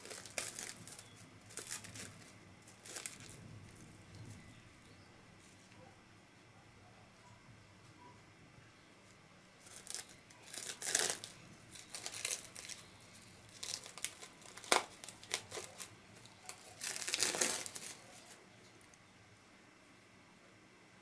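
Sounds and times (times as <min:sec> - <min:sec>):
plastic wrap crinkling and tearing: 0:00.0 - 0:04.3, 0:09.6 - 0:18.4.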